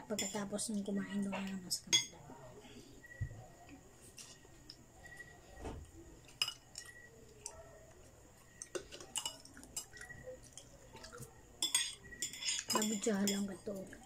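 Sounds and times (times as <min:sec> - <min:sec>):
cutlery clinking on bowls: 0:00.0 - 0:00.6, 0:01.2 - 0:02.2, 0:06.2 - 0:07.6, 0:08.5 - 0:14.0.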